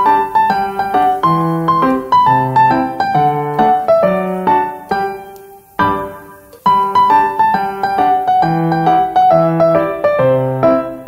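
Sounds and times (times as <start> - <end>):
piano music: 0.0 - 11.0.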